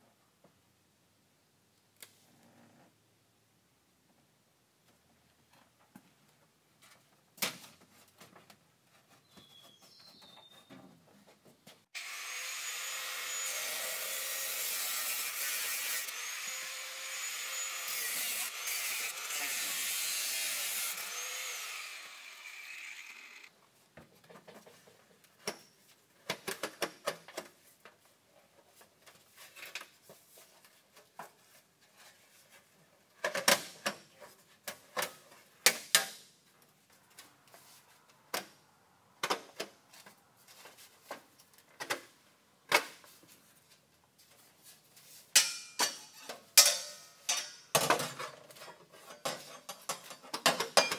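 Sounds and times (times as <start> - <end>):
power tool cutting metal: 12.0 - 23.5.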